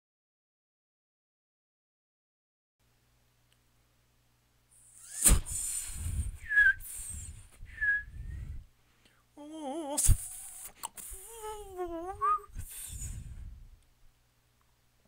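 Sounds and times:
rough pressed breath noise: 0:04.8 - 0:09.3, 0:10.0 - 0:13.8
short high vocal squeaks: 0:04.9 - 0:05.7, 0:09.7 - 0:13.0
strained solo voice: 0:09.4 - 0:13.4.

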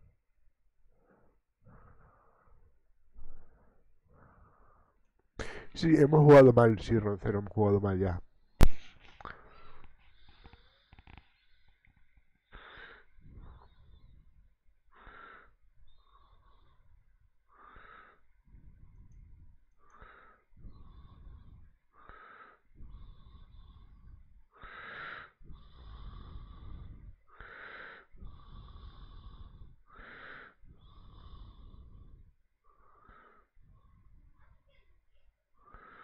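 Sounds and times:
person breathing slowly: 0:00.0 - 0:06.1, 0:08.7 - 0:34.8, 0:35.4 - 0:36.0.

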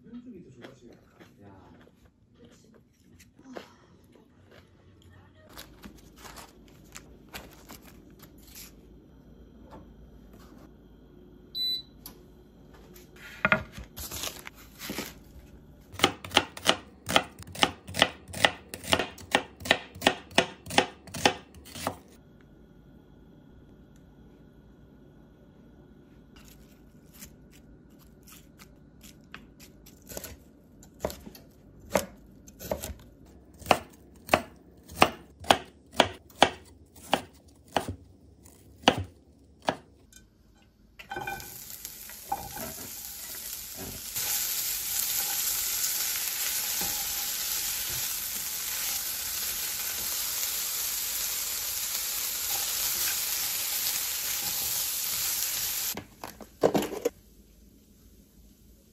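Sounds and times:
knife chopping on wooden board: 0:16.0 - 0:22.0, 0:29.3 - 0:33.0, 0:33.6 - 0:38.0, 0:38.8 - 0:39.9
food sizzling in frying pan: 0:41.1 - 0:56.0.

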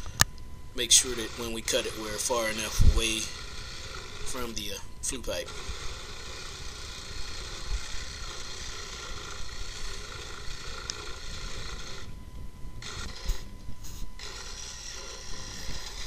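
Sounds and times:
reciprocating saw cutting wood: 0:00.8 - 0:12.2, 0:12.8 - 0:16.0.

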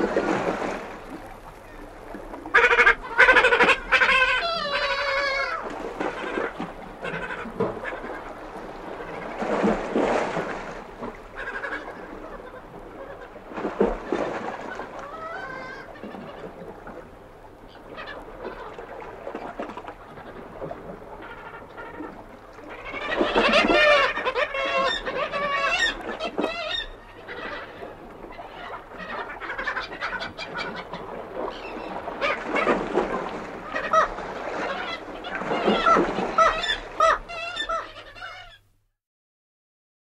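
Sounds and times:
sea washing over rocks: 0:00.0 - 0:24.5
kittiwakes calling: 0:01.5 - 0:10.4, 0:11.4 - 0:16.6, 0:20.2 - 0:38.6.

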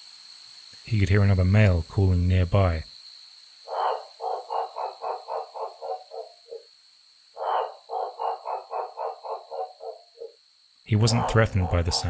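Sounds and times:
frog calling: 0:03.6 - 0:12.0.

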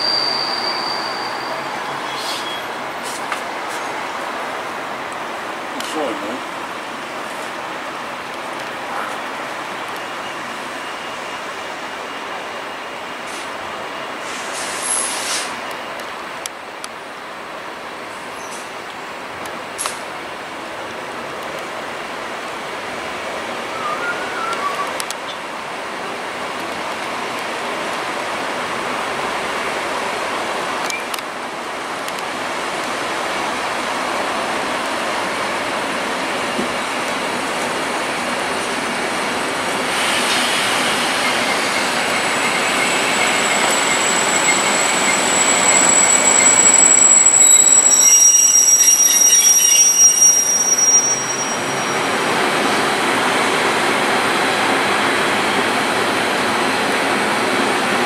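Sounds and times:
high-pitched wheel squeal: 0:00.0 - 0:02.8, 0:23.7 - 0:25.0, 0:41.2 - 0:52.2
train running on rails: 0:00.0 - 0:58.0.

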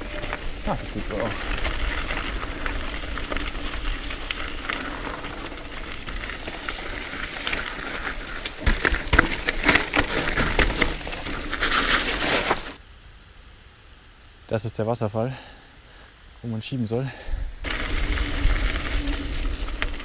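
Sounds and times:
tyres crunching on gravel: 0:00.0 - 0:12.8, 0:17.7 - 0:20.0
bike rattling knocks: 0:04.4 - 0:12.7.

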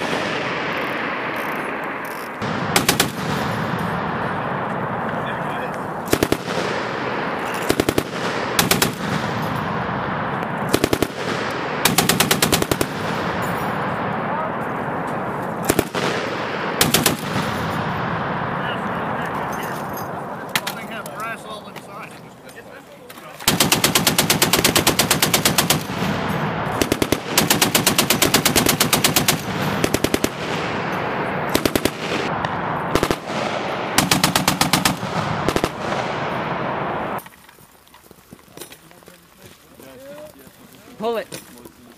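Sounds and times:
gunfire echo: 0:00.0 - 0:22.1, 0:23.4 - 0:37.2
machine gun bursts: 0:07.4 - 0:09.5, 0:10.7 - 0:13.5, 0:23.4 - 0:30.5, 0:31.5 - 0:32.0, 0:34.0 - 0:35.8.

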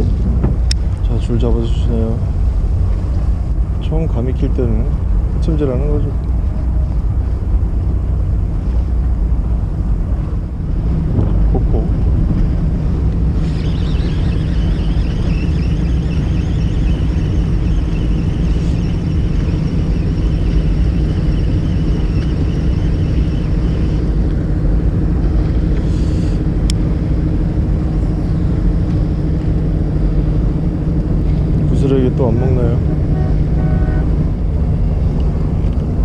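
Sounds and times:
boat engine drone: 0:00.0 - 0:36.0
high whine: 0:00.0 - 0:36.0.

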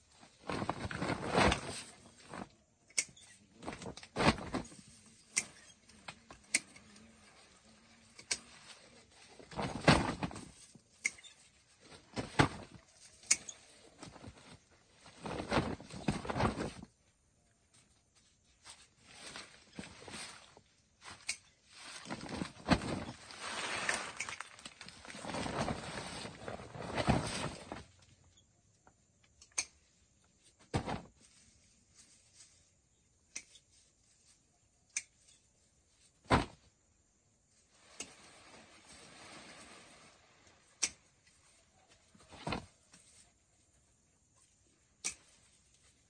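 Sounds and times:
plastic bag rustling: 0:00.2 - 0:02.5, 0:18.6 - 0:27.9
dry leaves rustling: 0:21.6 - 0:27.7.

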